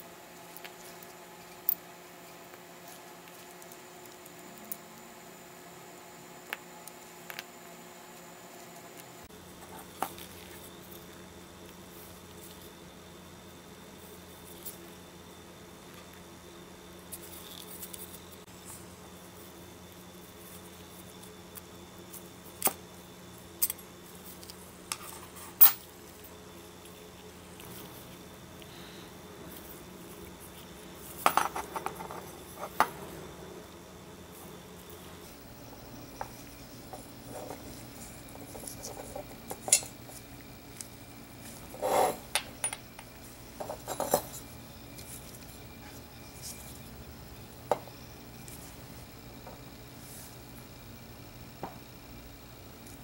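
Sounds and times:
faint steady hum: 0:00.0 - 0:53.0.

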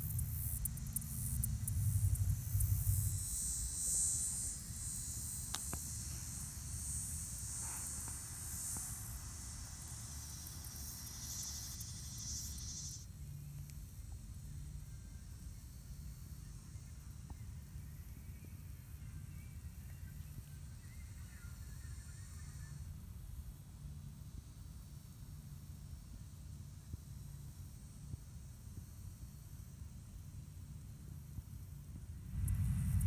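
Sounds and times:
high-pitched insect chorus: 0:00.0 - 0:33.0
low rumble: 0:32.1 - 0:33.0.

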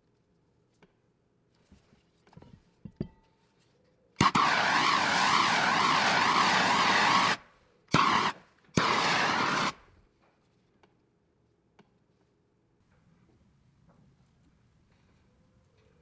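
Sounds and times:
gas hissing from spray nozzle: 0:04.2 - 0:09.8.

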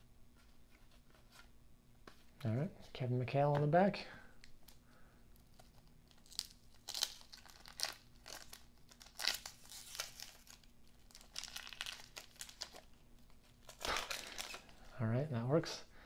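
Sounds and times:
paper wrapper crinkling and tearing: 0:05.4 - 0:14.9.

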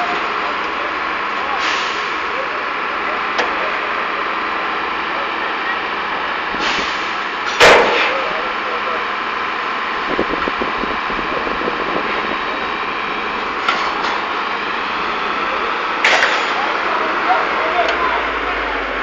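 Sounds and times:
steady machinery noise: 0:00.0 - 0:19.0
loud bang: 0:07.6 - 0:08.2.

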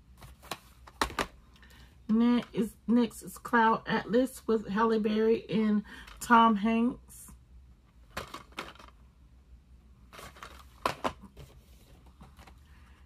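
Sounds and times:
plastic cases clacking and scraping: 0:00.2 - 0:01.4, 0:08.1 - 0:09.0, 0:10.1 - 0:12.7.

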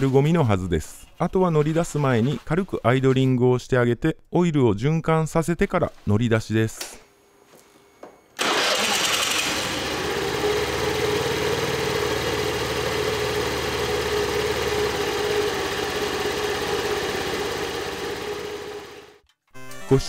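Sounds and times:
scooter engine starting and idling: 0:08.4 - 0:19.2.

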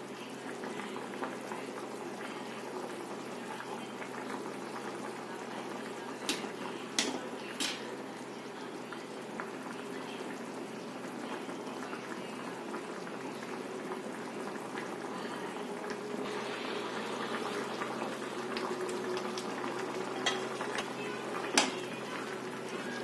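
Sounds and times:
gravy bubbling and popping: 0:15.8 - 0:22.4.

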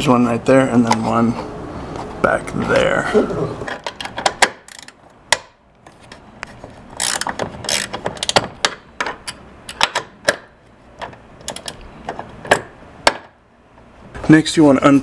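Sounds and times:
ratcheting wrench clicking: 0:03.8 - 0:05.0, 0:07.0 - 0:10.4.

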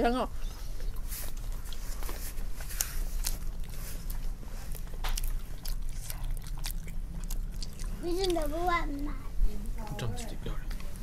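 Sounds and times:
people chewing and biting: 0:00.9 - 0:09.1.

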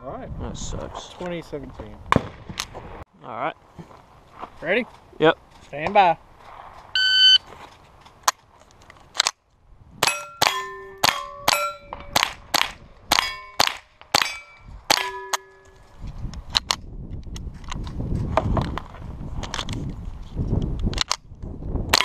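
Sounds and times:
steel plate clanging: 0:10.0 - 0:12.3, 0:13.1 - 0:15.9.

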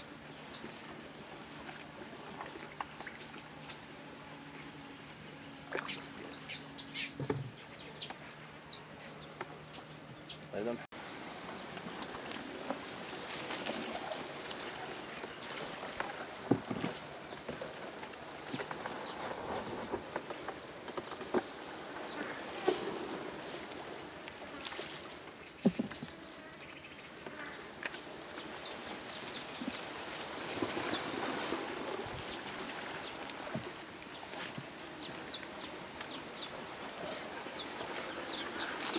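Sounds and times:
small birds chirping: 0:00.0 - 0:01.3, 0:02.6 - 0:10.8, 0:24.5 - 0:38.9
reeds swishing along canoe: 0:00.0 - 0:07.3, 0:10.9 - 0:38.9
sharp knocks on canoe: 0:25.6 - 0:26.2.

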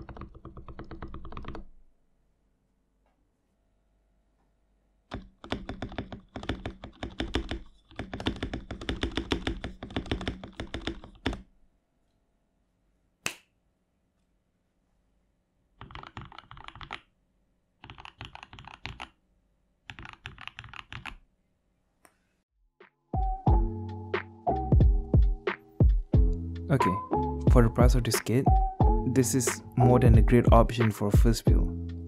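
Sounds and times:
mechanical keyboard typing: 0:00.0 - 0:01.7, 0:05.1 - 0:11.4, 0:15.8 - 0:17.1, 0:17.8 - 0:19.2, 0:19.9 - 0:21.2.

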